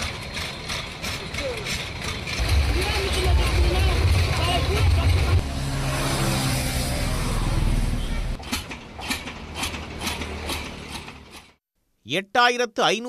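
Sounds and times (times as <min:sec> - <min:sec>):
drilling rig clanking: 0:00.0 - 0:05.4, 0:08.3 - 0:11.6
engine hum: 0:00.0 - 0:11.6.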